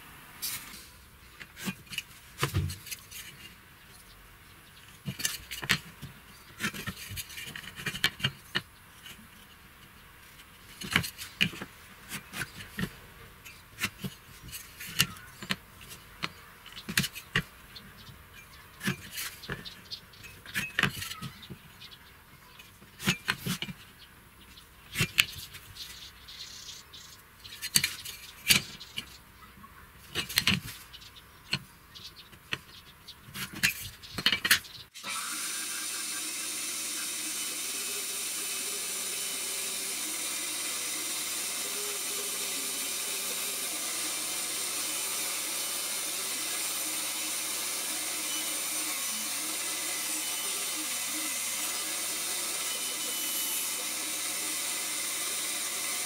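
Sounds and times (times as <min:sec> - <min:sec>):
band saw running: 0:35.0 - 0:56.0.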